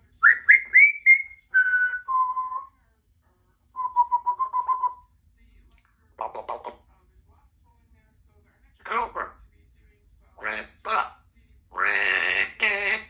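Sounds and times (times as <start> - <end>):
parrot whistling: 0.2 - 2.7, 3.8 - 5.0.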